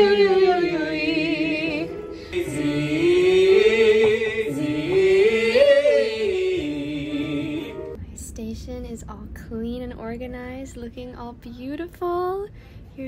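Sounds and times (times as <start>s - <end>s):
person singing vocal warm-up: 0.0s - 7.9s.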